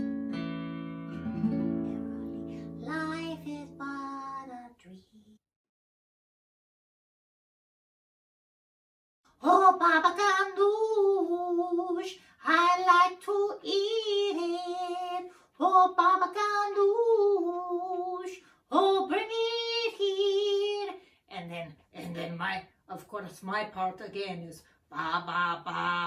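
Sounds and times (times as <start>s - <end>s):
person singing unaccompanied: 2.0s - 5.4s, 9.4s - 21.0s, 24.9s - 26.0s.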